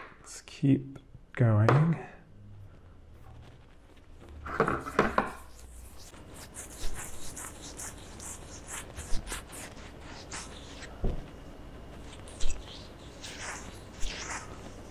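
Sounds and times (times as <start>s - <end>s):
fingertips rubbing stubbly skin: 5.4s - 14.9s.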